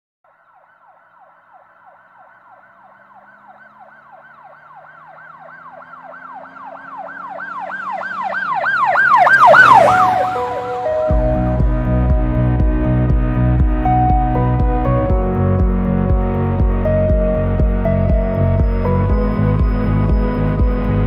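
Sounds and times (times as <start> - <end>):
siren wailing: 0.3 - 21.0
music: 10.0 - 21.0.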